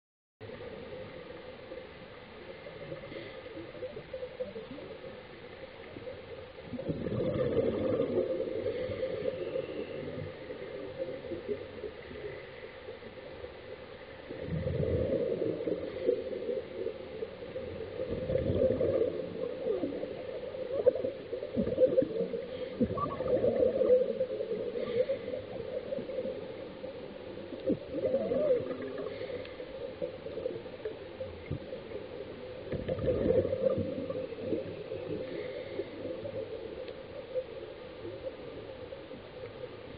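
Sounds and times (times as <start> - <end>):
steady underwater hiss: 0.4 - 39.9
underwater bubbles bursting: 6.6 - 12.3, 14.2 - 37.5.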